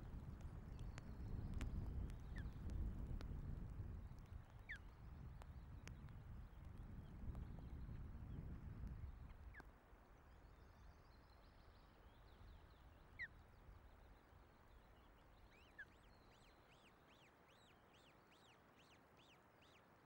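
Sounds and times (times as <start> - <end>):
wind buffeting microphone: 0.0 - 9.6.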